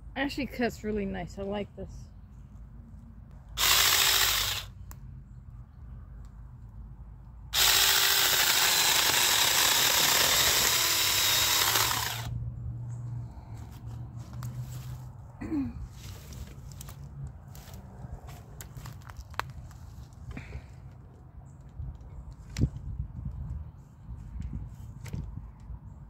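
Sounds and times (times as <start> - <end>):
electric chainsaw cutting branch: 3.6 - 4.7, 7.6 - 12.3.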